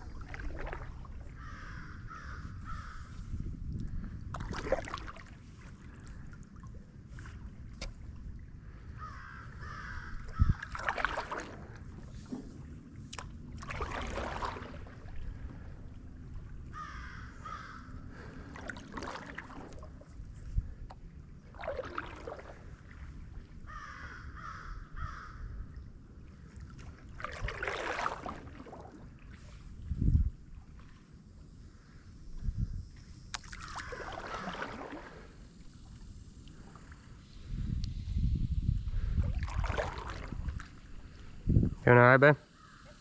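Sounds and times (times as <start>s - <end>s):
paddle strokes swishing water: 0.0s - 41.5s
crow cawing: 1.4s - 3.1s, 9.0s - 10.7s, 16.8s - 18.0s, 23.7s - 25.4s.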